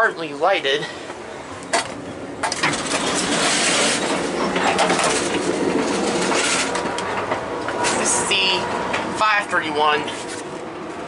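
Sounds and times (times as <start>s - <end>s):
train running on track: 2.2s - 11.0s.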